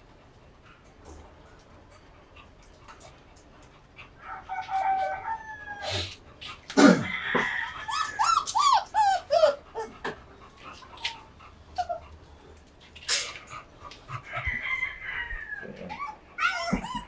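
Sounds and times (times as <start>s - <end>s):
puppies whining and yelping: 4.0s - 12.6s, 13.2s - 17.0s.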